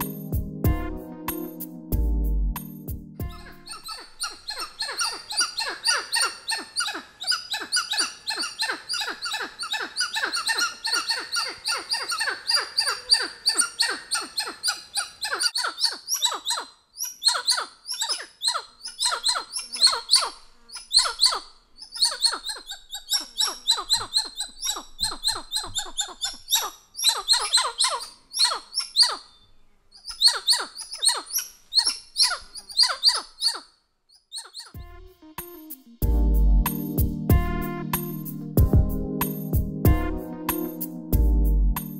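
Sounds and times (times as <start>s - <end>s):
monkey calling: 3.2s - 29.4s, 30.0s - 33.7s, 34.3s - 34.9s.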